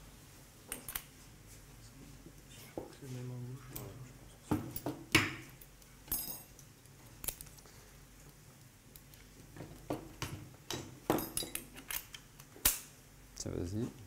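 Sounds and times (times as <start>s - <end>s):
metal instruments clinking: 5.6s - 6.6s, 10.8s - 12.2s.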